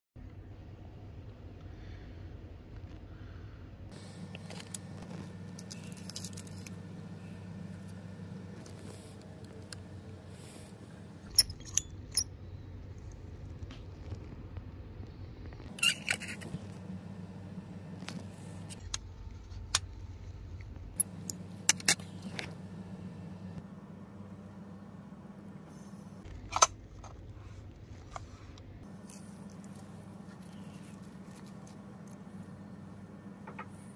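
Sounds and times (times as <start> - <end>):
steady low hum: 0.2 - 33.9.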